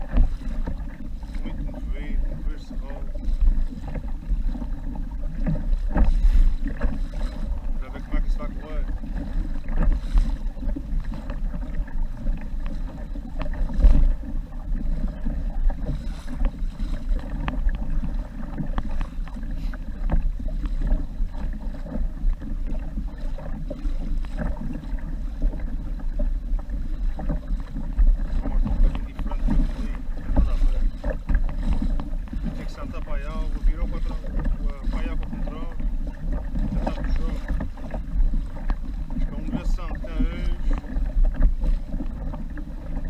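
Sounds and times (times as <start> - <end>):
knock or splash: 0.0 - 43.0
water lapping against a hull: 0.0 - 43.0
wind rumble on microphone: 0.0 - 43.0.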